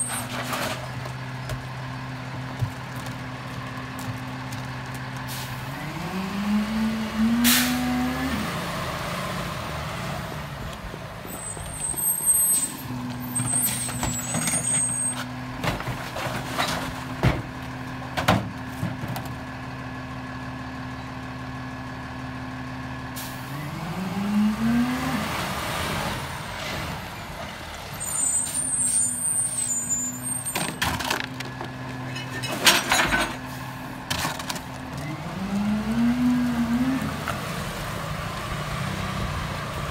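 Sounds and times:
air brake hiss: 7.4s - 7.8s
thin high squeals: 11.3s - 15.2s, 28.0s - 30.6s
metal knocks of bins and packer: 18.1s - 19.2s.

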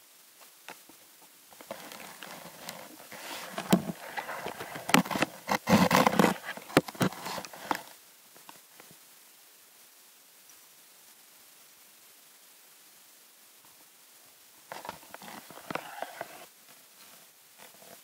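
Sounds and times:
scraping and rustling on camera: 1.6s - 8.0s, 14.7s - 18.0s.

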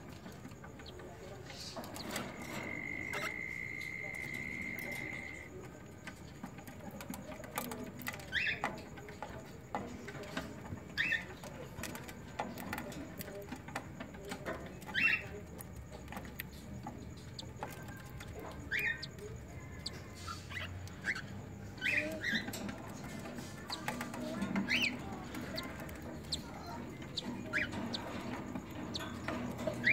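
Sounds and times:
chick peeping: 17.3s - 29.9s.

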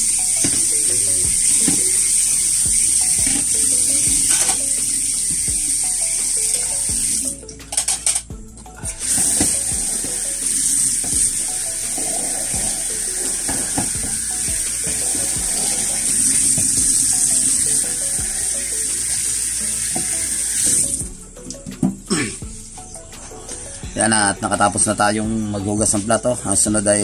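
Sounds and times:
tap water running into sink: 0.0s - 7.3s, 8.9s - 21.0s
faint background music: 0.0s - 27.0s.

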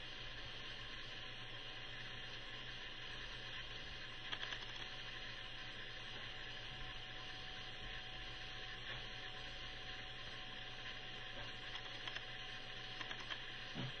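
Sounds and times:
low electrical hum: 0.0s - 14.0s
steady hiss: 0.0s - 14.0s
faint clicks: 11.6s - 12.3s, 13.0s - 13.4s.

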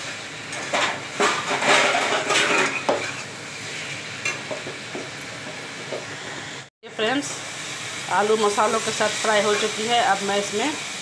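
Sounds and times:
potatoes sizzling in a pan: 0.0s - 11.0s
spatula scraping a pan: 0.7s - 3.3s.

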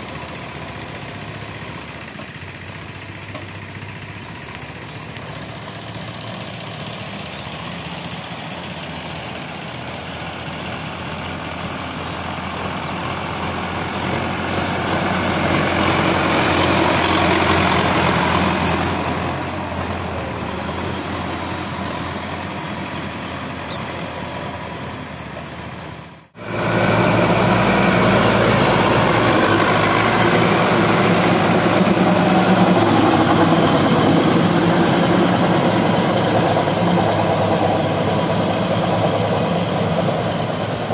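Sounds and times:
tractor diesel engine running: 0.0s - 40.9s.

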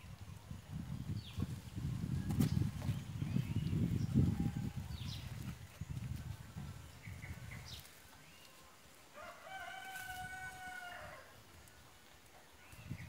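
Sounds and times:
rooster crowing: 9.2s - 11.4s.

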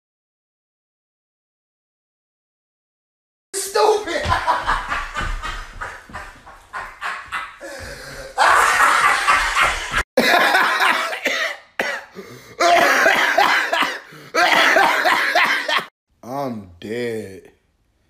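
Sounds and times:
man laughing loudly: 3.8s - 11.4s, 12.6s - 15.9s
man coughing: 10.2s - 15.9s.

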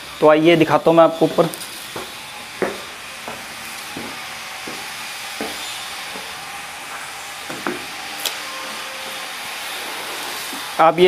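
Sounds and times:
footsteps on concrete stairs: 1.3s - 8.0s.

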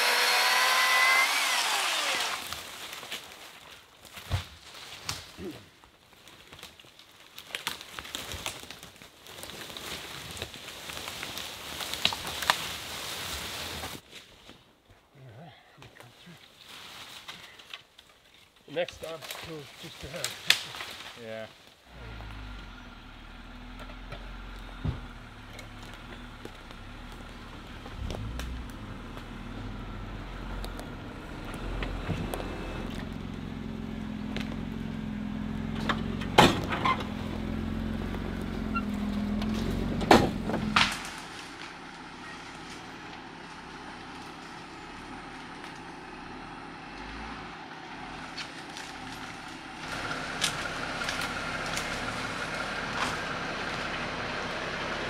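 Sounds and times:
off-road vehicle engine crawling: 0.0s - 3.6s, 21.8s - 55.0s
sharp cracks: 40.1s - 41.8s.

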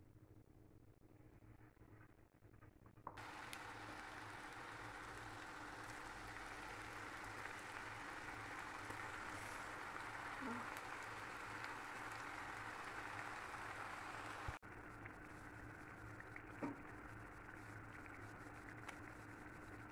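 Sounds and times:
potatoes sizzling in hot oil: 3.2s - 19.9s.

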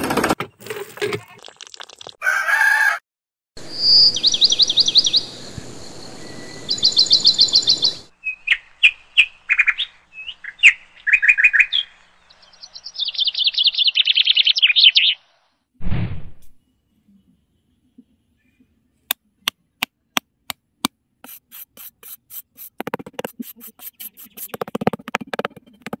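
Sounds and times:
small birds chirping: 6.5s - 15.3s, 21.3s - 26.0s.

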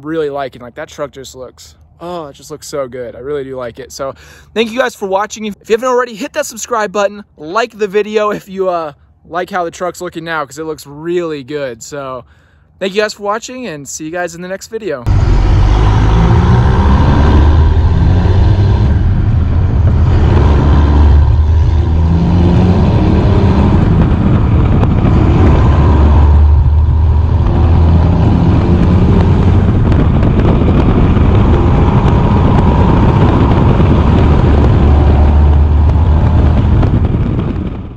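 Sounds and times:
diesel truck engine pulling hard: 15.1s - 37.9s.

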